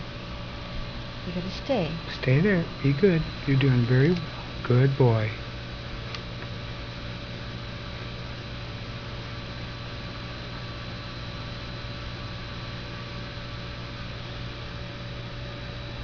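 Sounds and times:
electrical hum: 0.0s - 16.0s
faint high whine: 0.0s - 16.0s.

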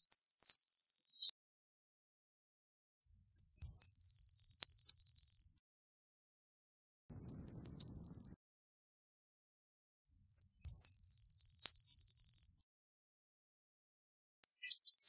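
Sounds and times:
blue tit singing: 0.0s - 1.3s, 3.1s - 5.5s, 7.1s - 8.4s, 10.1s - 12.5s, 14.4s - 15.0s.

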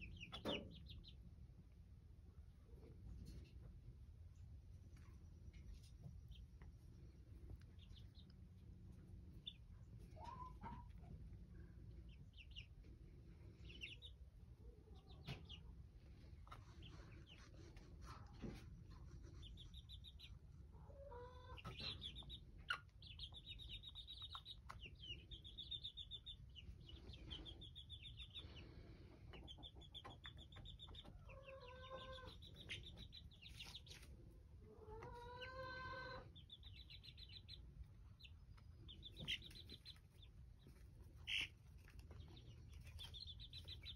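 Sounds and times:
chicks peeping: 0.0s - 43.9s
chick trilling calls: 7.6s - 11.2s, 18.5s - 43.9s.

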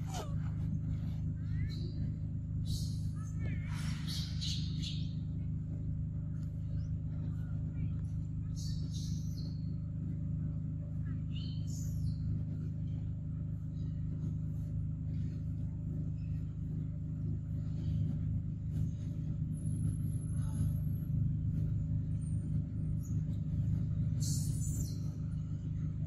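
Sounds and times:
low rumble: 0.0s - 26.0s.

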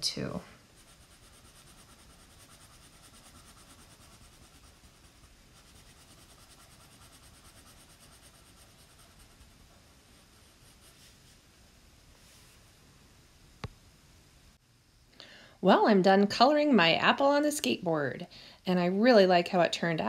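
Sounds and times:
crayon scratching on paper: 0.7s - 9.6s, 10.2s - 11.3s.

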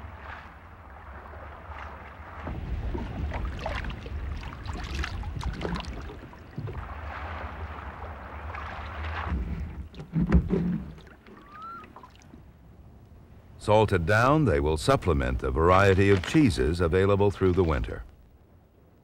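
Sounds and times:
wind on microphone: 0.0s - 11.8s
water splashing and dripping: 0.0s - 12.4s, 15.7s - 17.9s.

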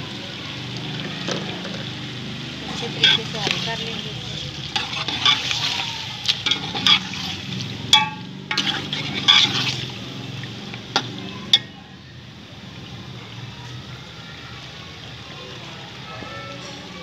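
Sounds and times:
ladle scraping metal pot: 2.6s - 11.7s.

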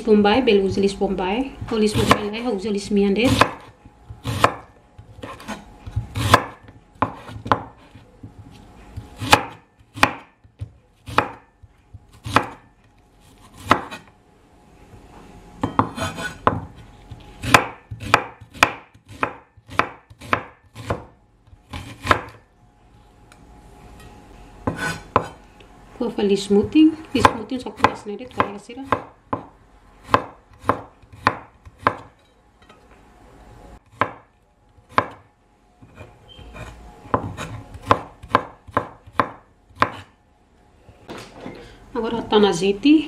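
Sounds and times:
knife chopping on wooden board: 1.6s - 2.4s, 3.2s - 8.4s, 9.0s - 12.7s, 13.4s - 14.1s, 15.6s - 22.4s, 24.6s - 25.4s, 27.2s - 32.2s, 33.9s - 35.2s, 35.8s - 40.1s.

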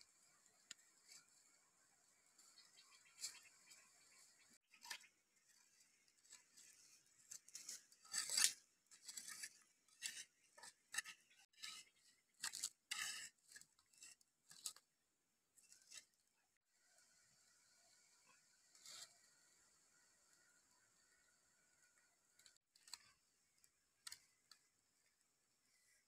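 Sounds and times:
hoe scraping dry earth: 0.0s - 14.8s, 18.2s - 21.1s.

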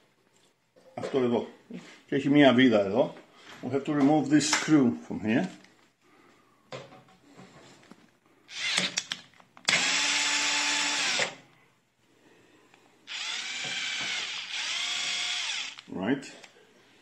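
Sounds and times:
cordless drill motor whirring: 8.5s - 11.4s, 13.1s - 15.9s.

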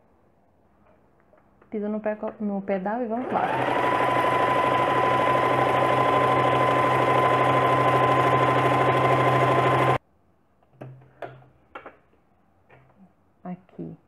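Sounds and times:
sewing machine running: 3.2s - 10.0s.

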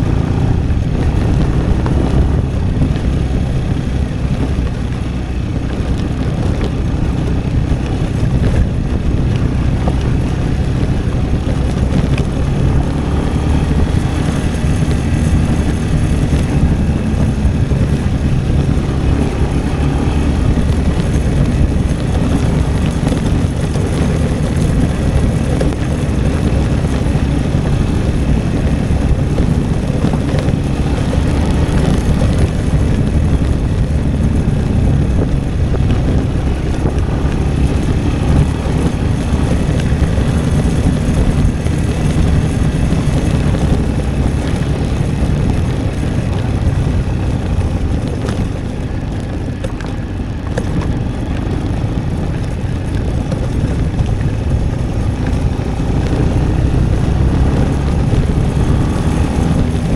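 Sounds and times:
motorcycle engine running: 0.0s - 59.9s
wind on microphone: 0.0s - 59.9s.

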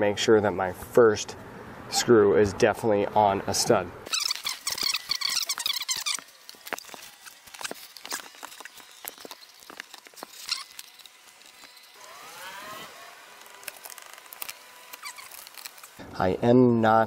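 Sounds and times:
faint rising and falling tone: 4.1s - 16.0s.

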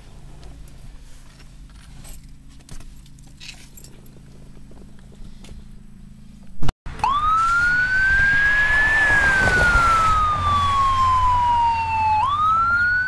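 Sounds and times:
police siren wailing: 6.9s - 13.0s.

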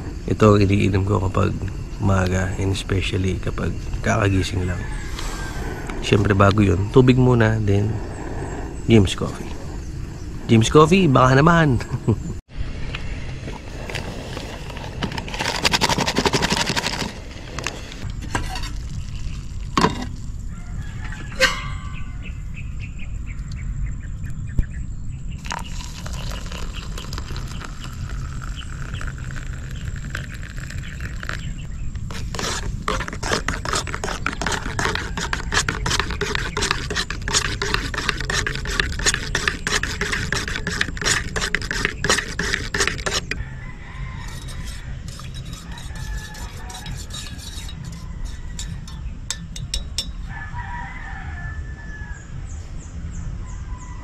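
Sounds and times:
powder shaken from sachet: 15.2s - 17.2s, 32.1s - 43.2s
sharp metal clink: 21.4s - 22.3s
spoon stirring and clinking in mug: 25.4s - 29.6s, 32.1s - 43.4s, 44.2s - 50.2s
hot water pouring into mug: 25.4s - 31.4s.

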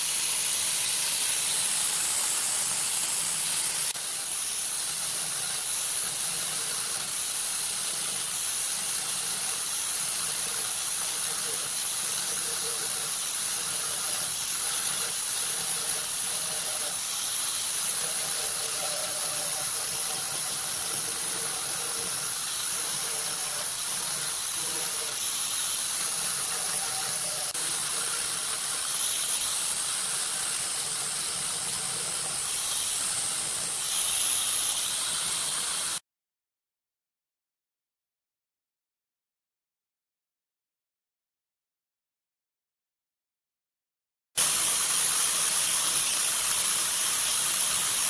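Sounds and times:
grinder whining on metal chain: 0.0s - 36.0s.

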